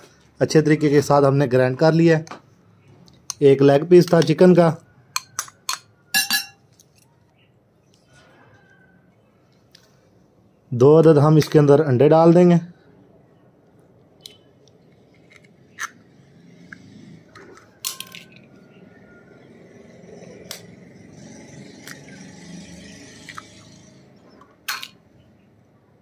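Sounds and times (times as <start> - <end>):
spoon clinking on glass bowl: 5.2 - 6.7
spoon cracking eggshells: 14.2 - 16.0.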